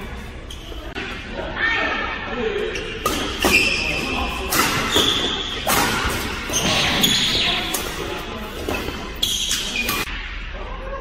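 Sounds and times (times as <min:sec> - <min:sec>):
shoes squeaking on court: 0:02.7 - 0:10.1.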